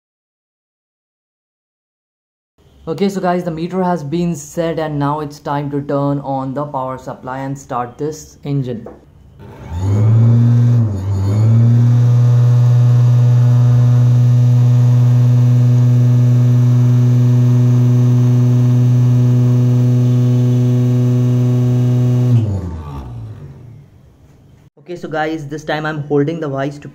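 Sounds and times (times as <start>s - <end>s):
electric motor humming and whining: 9.4s - 23.9s.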